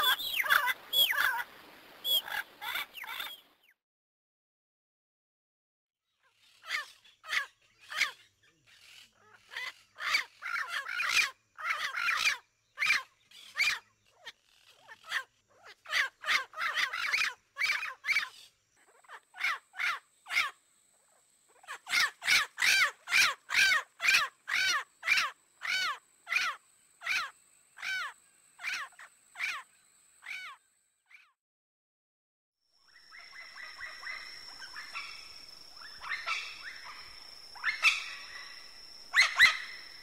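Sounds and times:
parrots squawking: 0:00.0 - 0:01.4, 0:02.1 - 0:03.4, 0:08.8 - 0:13.8, 0:14.7 - 0:18.3, 0:21.6 - 0:29.6, 0:30.2 - 0:31.3, 0:33.3 - 0:39.8.

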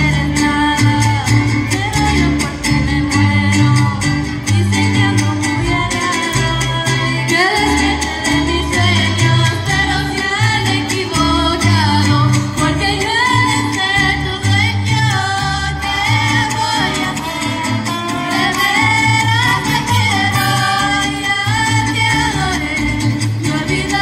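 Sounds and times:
repeating bass line: 0:00.0 - 0:24.0
strummed guitars: 0:00.0 - 0:24.0
women singing: 0:00.0 - 0:24.0
violins: 0:00.1 - 0:24.0.

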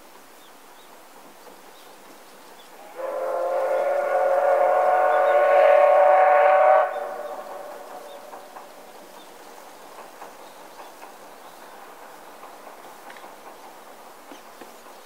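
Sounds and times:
steam locomotive whistle: 0:02.8 - 0:08.8.

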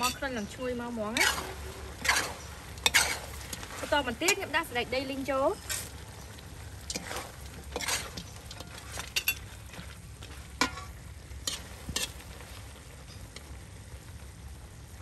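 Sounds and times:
metal spoon scraping a wok: 0:00.0 - 0:13.6
food sizzling: 0:00.0 - 0:15.0.

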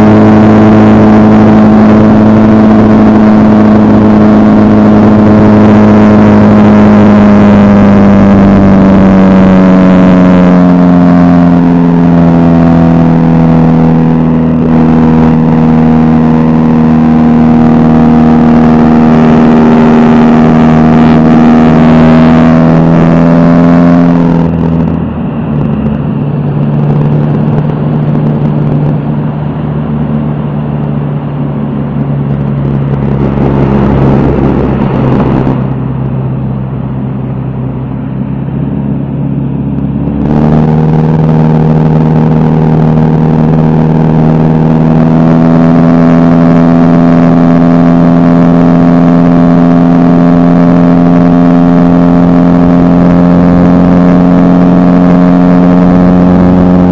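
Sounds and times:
propeller plane engine drone: 0:00.0 - 0:56.9.

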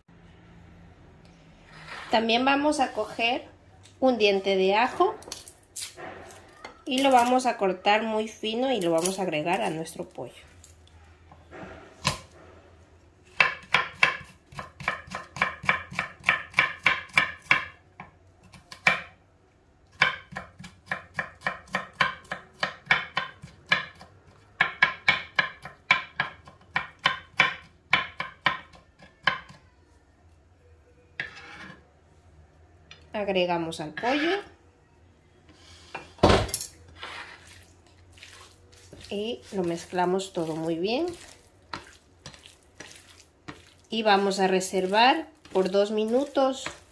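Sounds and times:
knife chopping garlic: 0:13.3 - 0:19.2, 0:19.9 - 0:29.6, 0:38.8 - 0:46.9.

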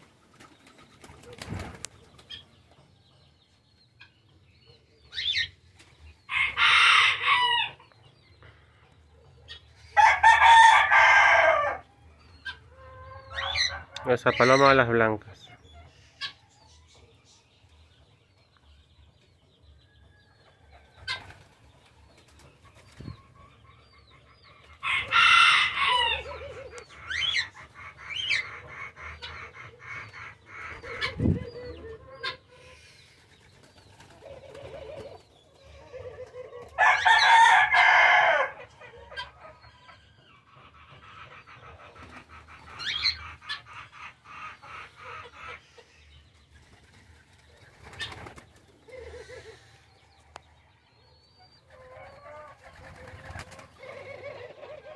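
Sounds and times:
rooster crowing: 0:10.0 - 0:11.8, 0:24.9 - 0:26.4, 0:36.8 - 0:38.6
hens clucking: 0:23.0 - 0:33.2, 0:33.9 - 0:50.4, 0:51.6 - 0:54.9.

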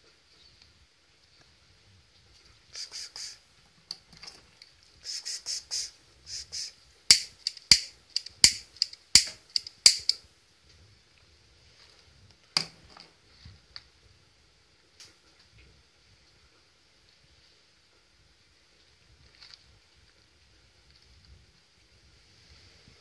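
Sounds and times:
sharp loud clicks: 0:06.3 - 0:10.2.

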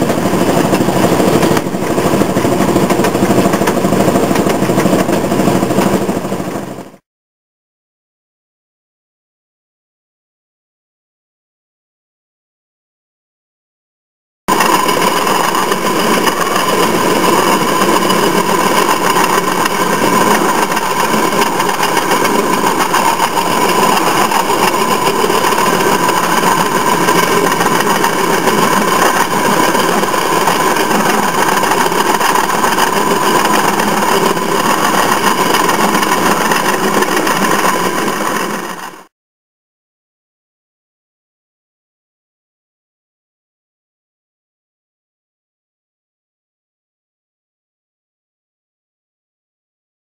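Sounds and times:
railroad motorcar engine running: 0:00.0 - 0:07.0, 0:14.5 - 0:39.1.

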